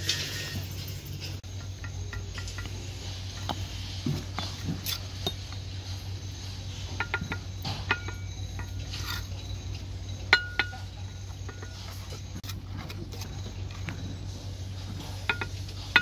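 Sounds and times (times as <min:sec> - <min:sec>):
trowel tapping bricks: 0:01.4 - 0:05.7, 0:06.8 - 0:13.3, 0:15.0 - 0:16.0.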